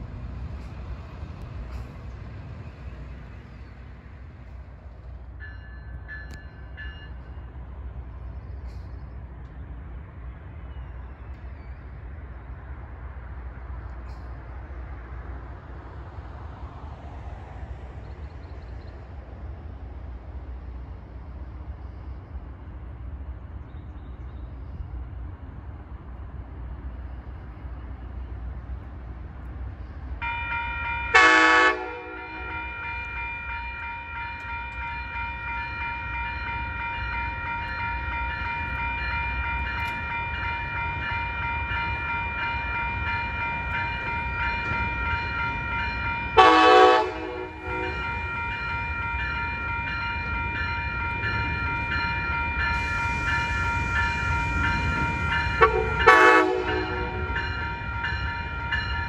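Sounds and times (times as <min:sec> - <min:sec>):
crossing warning bell ringing: 0:05.3 - 0:07.6, 0:30.2 - 0:59.0
locomotive air horn blasts: 0:31.1 - 0:33.0, 0:46.4 - 0:48.6, 0:55.5 - 0:58.1.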